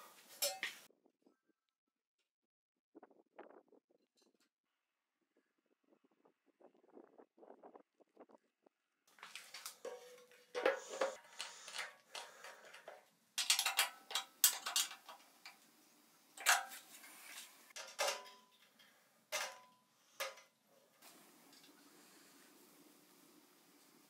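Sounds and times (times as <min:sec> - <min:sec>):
metal parts clanking: 0:09.5 - 0:15.2, 0:17.8 - 0:18.8.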